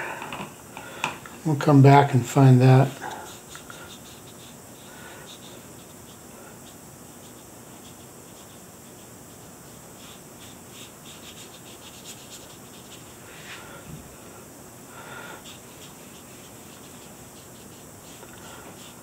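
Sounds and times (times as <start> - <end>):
faint steady hiss: 0.0 - 19.0
paintbrush stroking on paper: 2.8 - 13.7, 15.4 - 19.0.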